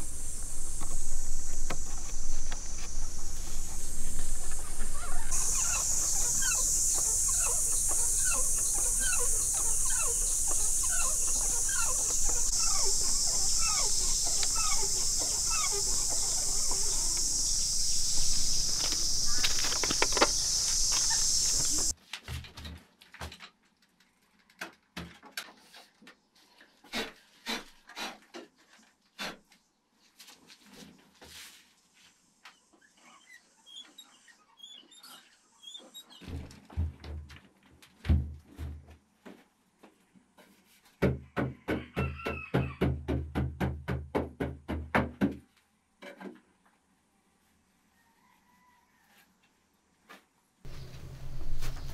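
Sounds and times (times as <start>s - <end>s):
high-pitched insect drone: 0.0s - 21.9s
short descending clucking calls: 0.3s - 21.9s.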